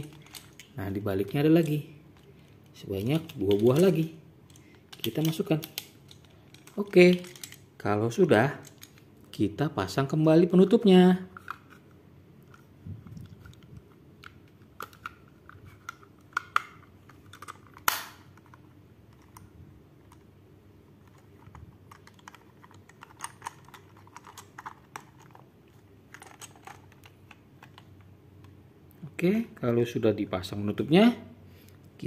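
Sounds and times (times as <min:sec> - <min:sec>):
small plastic clicks and rattles: 0:00.0 - 0:07.6, 0:21.0 - 0:25.4, 0:26.1 - 0:28.6.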